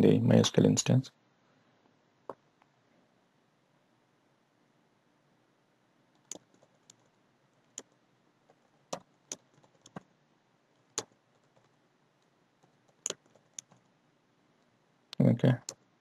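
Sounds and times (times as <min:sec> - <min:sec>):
keyboard keystrokes: 0:06.2 - 0:07.1, 0:08.9 - 0:10.0, 0:12.6 - 0:13.9.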